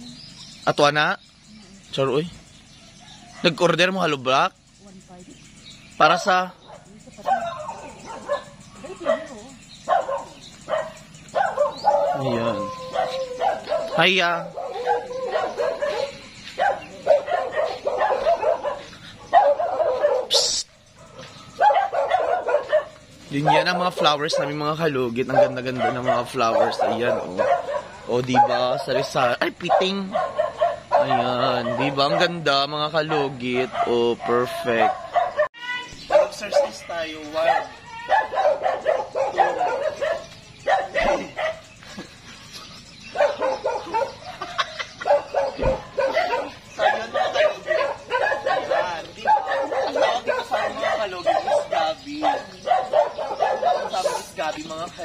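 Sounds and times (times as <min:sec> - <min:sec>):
animal yelping: 0:06.1 - 0:41.7, 0:43.1 - 0:54.6
small dog yapping: 0:06.7 - 0:24.6, 0:25.3 - 0:28.6, 0:29.7 - 0:32.3, 0:33.1 - 0:41.7, 0:43.1 - 0:54.4.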